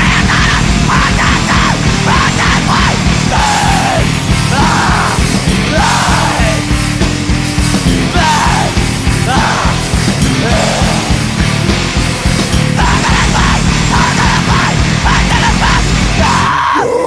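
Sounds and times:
screamed vocals: 0.0s - 6.6s, 8.1s - 11.2s, 12.7s - 17.0s
fast dense drumming: 0.0s - 16.8s
distorted guitars: 0.0s - 17.0s.

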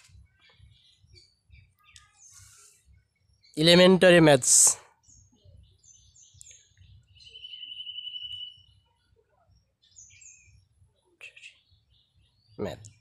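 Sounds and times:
small birds chirping: 0.0s - 13.0s
rapidly pulsing bird trill: 6.9s - 12.8s.

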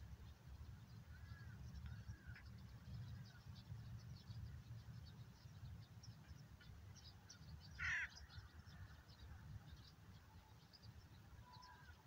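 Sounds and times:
small birds chirping: 0.0s - 12.0s
crow cawing: 7.8s - 8.2s.

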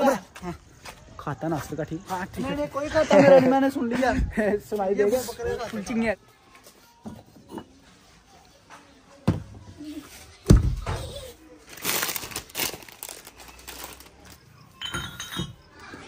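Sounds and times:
plastic snack packets crinkling: 11.6s - 14.6s.

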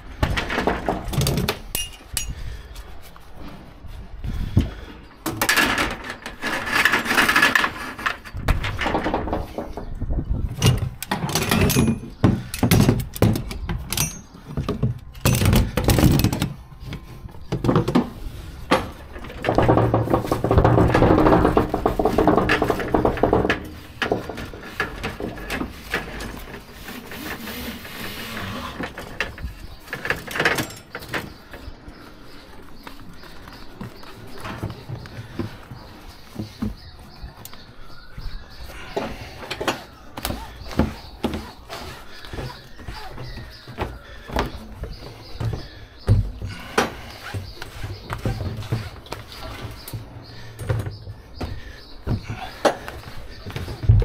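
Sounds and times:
steel hooks clinking against rail: 1.2s - 2.4s, 10.6s - 14.6s, 30.0s - 31.3s.

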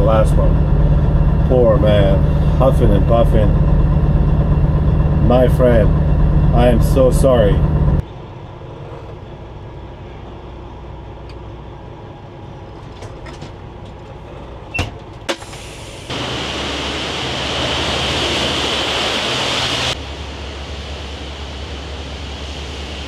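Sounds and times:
low engine hum: 0.0s - 23.0s
loud hiss: 15.3s - 23.0s.

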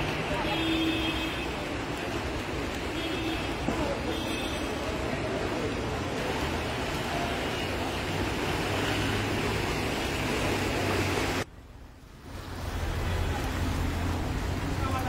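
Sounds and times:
floodwater rushing and swishing: 0.0s - 15.0s.

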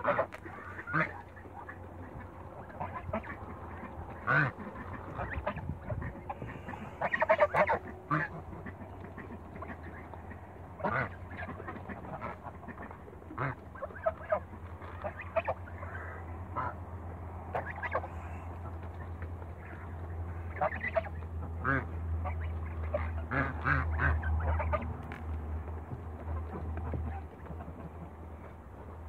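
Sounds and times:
geese calling: 0.0s - 29.0s.

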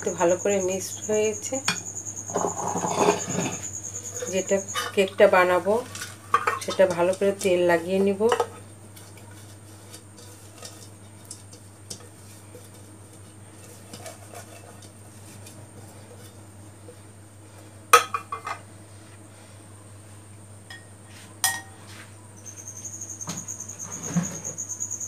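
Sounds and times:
pastry brush brushing metal pan: 9.0s - 17.0s.

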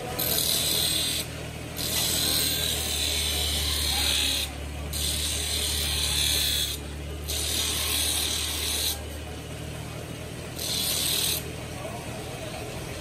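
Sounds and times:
grinder motor humming: 0.0s - 13.0s
metal hissing on grinding wheel: 0.2s - 9.0s, 10.6s - 11.5s.

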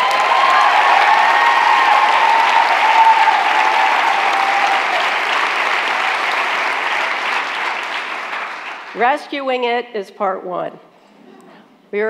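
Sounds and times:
audience applauding: 0.0s - 9.0s.

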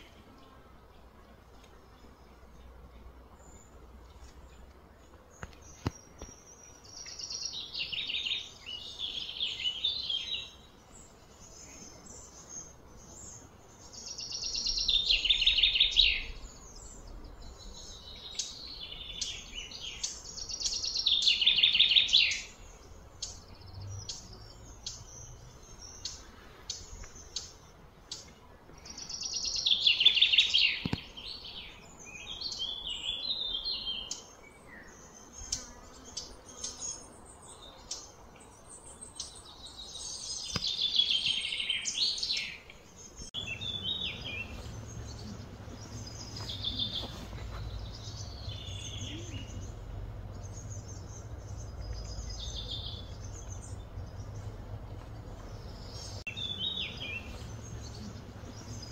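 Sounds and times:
high pulsing wildlife trills: 5.2s - 58.9s.

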